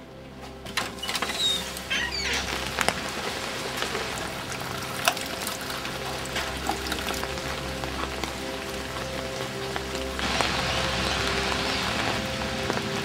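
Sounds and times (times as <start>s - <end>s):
rain on brick paving: 0.0s - 13.0s
drips and splashes: 0.7s - 13.0s
water running into a tub: 1.3s - 13.0s.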